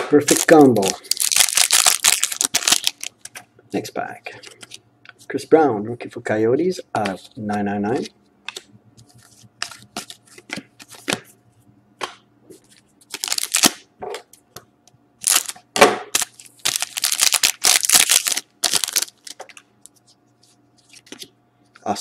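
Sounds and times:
wrapper crinkling and tearing: 0:00.2 - 0:03.3, 0:13.1 - 0:13.8, 0:15.2 - 0:19.5.

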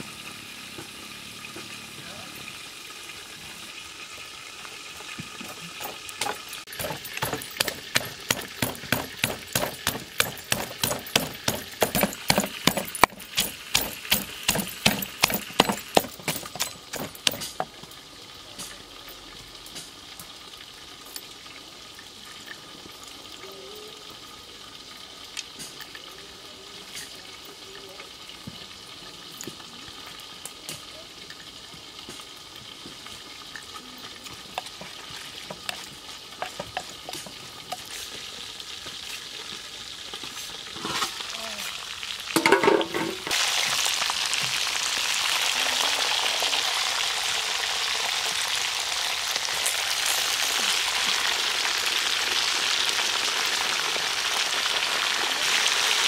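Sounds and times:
wooden pestle pounding in mortar: 0:06.2 - 0:17.7.

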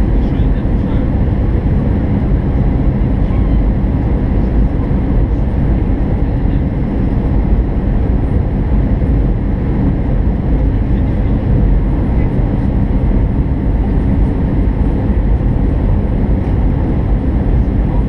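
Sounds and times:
jet engine: 0:00.0 - 0:18.0.

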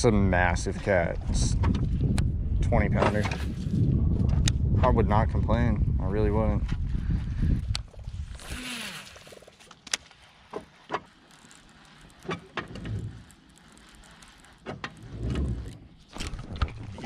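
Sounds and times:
reel spool whirring: 0:06.9 - 0:17.0
reel clicks: 0:07.6 - 0:17.0.

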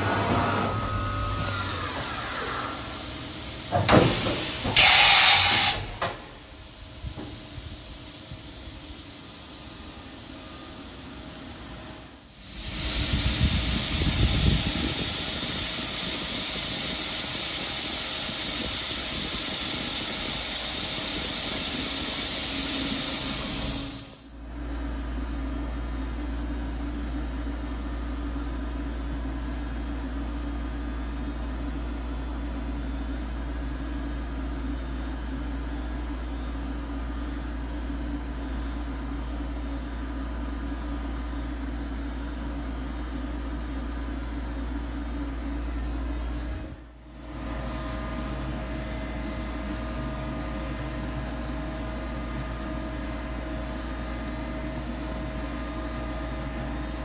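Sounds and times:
loud machine hiss: 0:00.0 - 0:24.4
low machine hum: 0:00.0 - 0:57.0.

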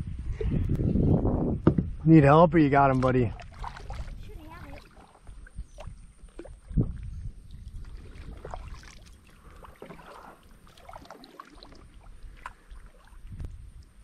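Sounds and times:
paddle splashing in water: 0:03.0 - 0:13.5.

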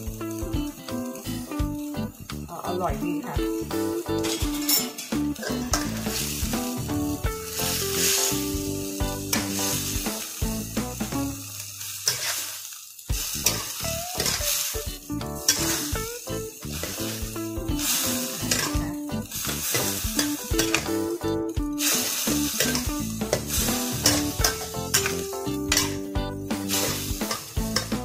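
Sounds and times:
greens sizzling in a wok: 0:00.0 - 0:28.0
metal spatula scraping pan: 0:04.2 - 0:06.7, 0:11.7 - 0:12.8, 0:13.4 - 0:14.8, 0:15.4 - 0:21.1, 0:21.8 - 0:28.0.

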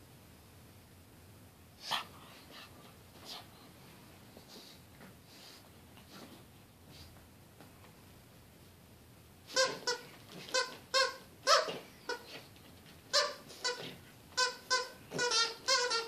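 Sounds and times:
squeaky dog toy squeaking: 0:09.5 - 0:12.5, 0:13.1 - 0:16.0.

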